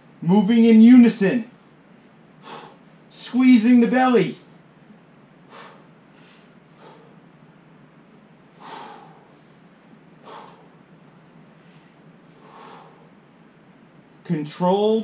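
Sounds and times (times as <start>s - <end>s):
man exhaling hard with effort: 2.4s - 2.9s, 5.5s - 7.2s, 8.6s - 9.5s, 10.2s - 10.8s, 12.3s - 13.2s.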